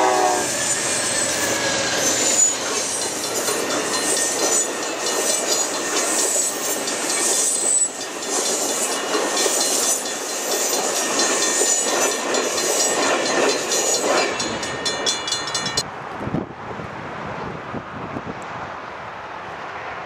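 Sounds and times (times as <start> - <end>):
high wheel squeal: 0.0 - 15.8
train wheels clattering over rails: 0.5 - 15.8.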